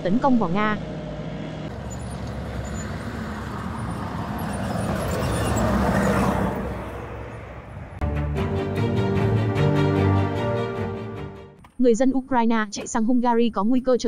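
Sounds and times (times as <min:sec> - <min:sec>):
armoured vehicle driving past: 0:00.8 - 0:09.3
theme music: 0:06.2 - 0:11.6.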